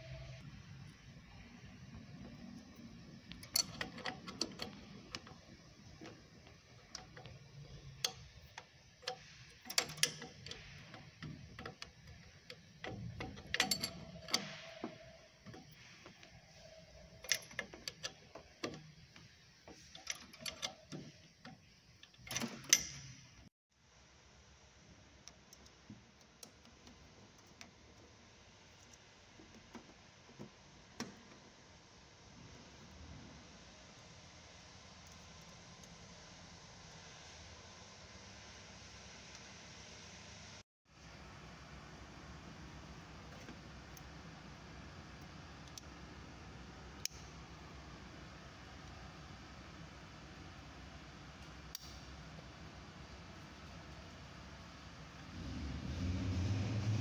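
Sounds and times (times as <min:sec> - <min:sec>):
metal wrench clinking on nuts: 0:03.4 - 0:05.3, 0:09.0 - 0:14.7.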